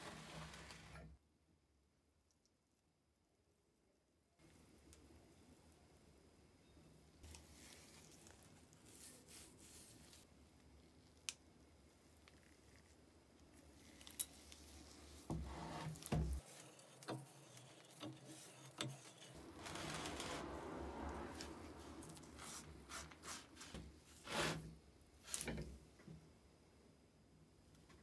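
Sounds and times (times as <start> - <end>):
metal rubbing and scraping: 15.2 - 24.7.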